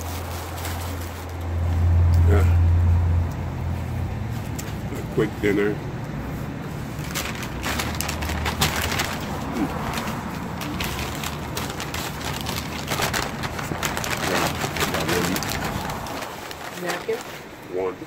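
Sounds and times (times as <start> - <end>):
paper wrappers crinkling: 0.0 - 1.7, 6.3 - 17.6.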